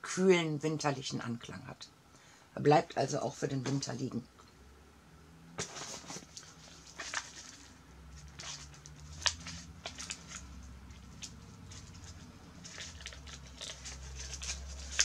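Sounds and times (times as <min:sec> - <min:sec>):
packaging rustling and crinkling: 0:05.6 - 0:15.0.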